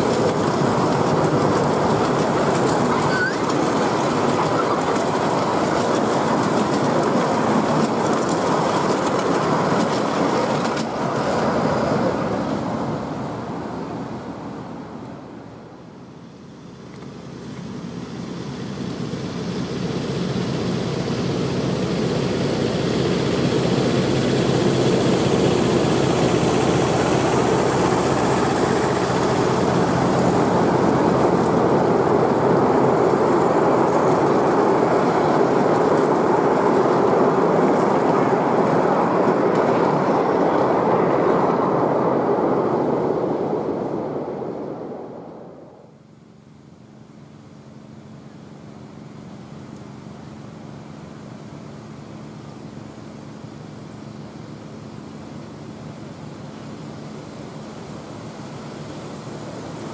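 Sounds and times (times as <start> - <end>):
miniature train rumbling on rails: 0.0 - 14.2, 16.4 - 45.8.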